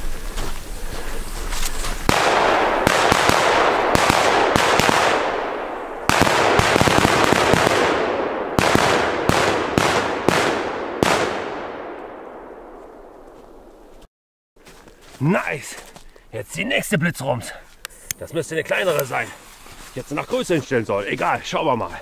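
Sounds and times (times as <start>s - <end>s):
crackling hiss: 0.0s - 6.3s, 17.6s - 21.2s
firework cracks and bangs: 2.0s - 12.1s.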